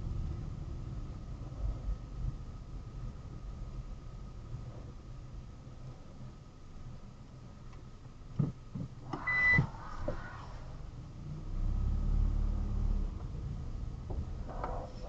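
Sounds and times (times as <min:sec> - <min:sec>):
low engine rumble: 0:00.0 - 0:15.0
short high electronic beep: 0:09.2 - 0:09.7.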